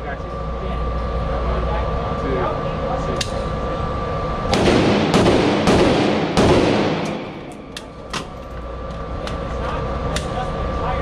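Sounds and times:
gunshots with ringing tail: 4.5s - 8.0s.

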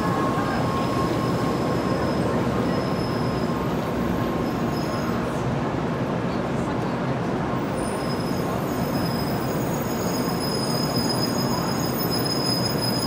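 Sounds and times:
train rolling past with rumble: 0.0s - 13.0s.

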